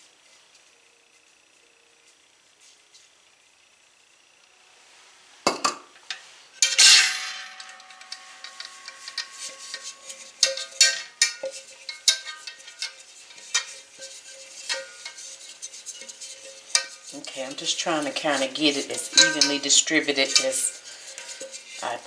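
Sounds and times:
sugar rattling in metal pan: 6.0 - 22.0
ringing metal clang: 6.6 - 12.9, 19.0 - 20.7
pan knocking: 6.6 - 22.0.

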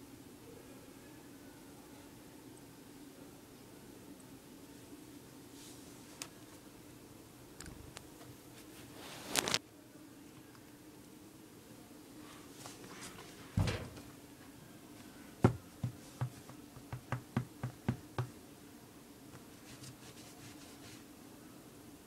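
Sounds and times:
faint steady hum: 0.0 - 22.0
dull thump: 13.6 - 14.1.

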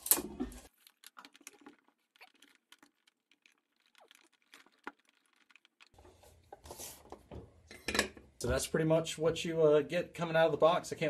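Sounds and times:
small objects clicking and rustling: 0.0 - 7.3.

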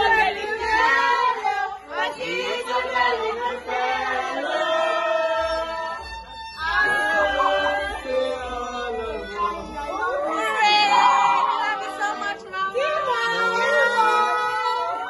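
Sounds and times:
group of voices singing: 0.0 - 15.0
violin playing: 5.3 - 15.0.

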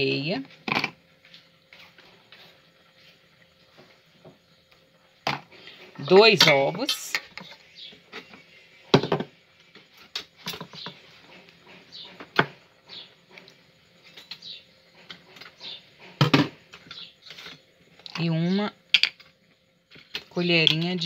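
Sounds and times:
eggs clinking in metal bowl: 6.2 - 7.6.

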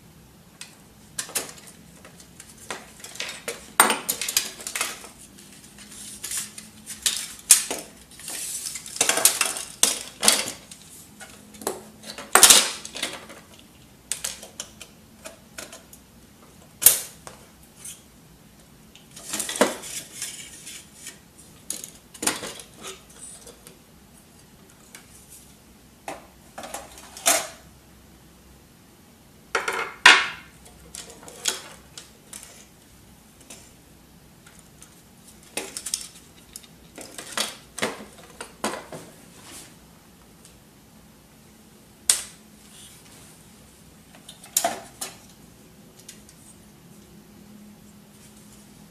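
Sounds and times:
printer parts clicking and clattering: 5.8 - 15.9, 21.6 - 23.7.

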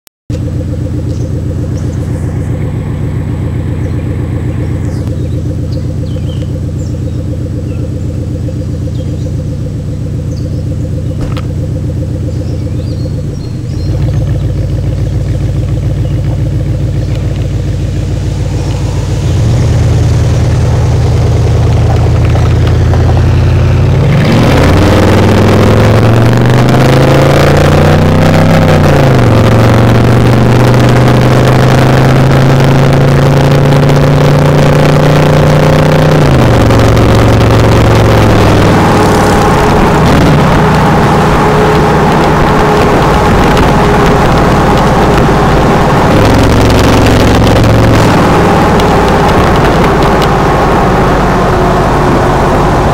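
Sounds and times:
car exhaust idling and accelerating: 0.3 - 52.9
road and wind noise: 0.3 - 52.9.

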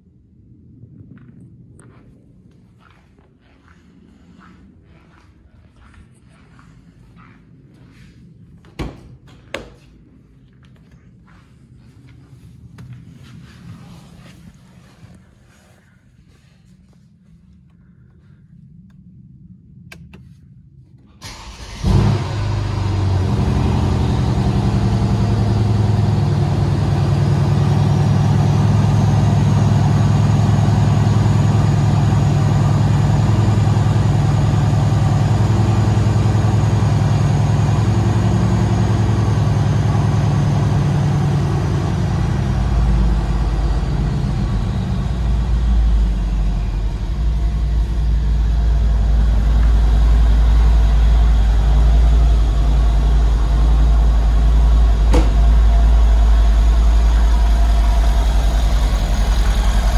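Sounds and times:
engine cranking: 21.2 - 22.2
engine revving and idling: 21.2 - 59.9.

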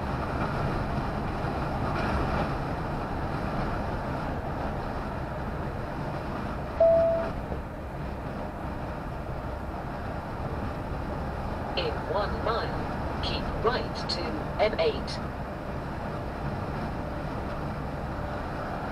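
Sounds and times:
heavy vehicle engine and tyre noise: 0.0 - 18.9
short electronic beep: 6.8 - 7.3.

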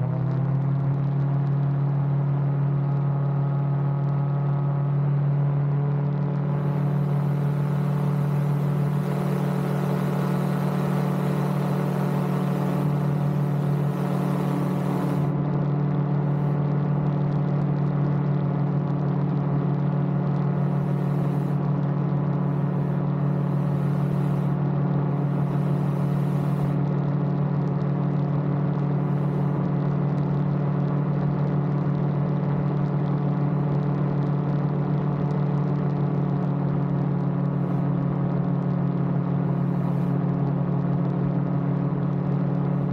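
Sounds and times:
aircraft engine and propeller drone: 3.3 - 17.1, 19.6 - 29.8, 38.8 - 40.6.

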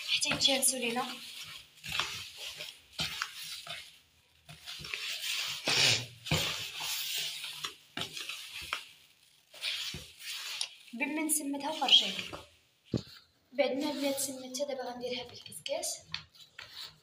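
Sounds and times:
semolina rubbed against plastic basin: 0.0 - 12.6, 13.6 - 14.8.

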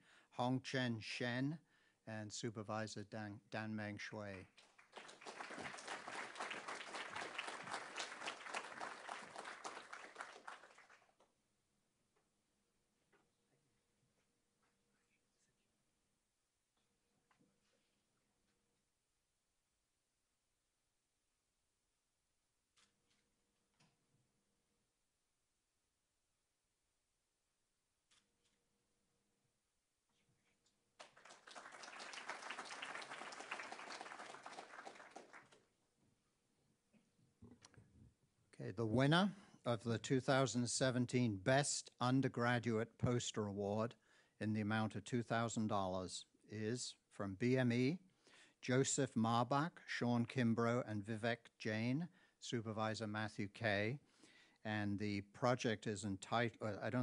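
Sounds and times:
audience applauding: 4.6 - 11.1, 31.0 - 35.6.

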